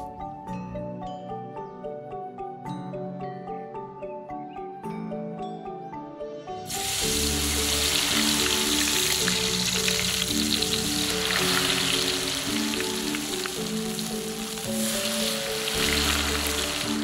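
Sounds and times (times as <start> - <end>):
melodic background music: 0.0 - 17.0
batter sizzling in hot oil: 6.7 - 17.0.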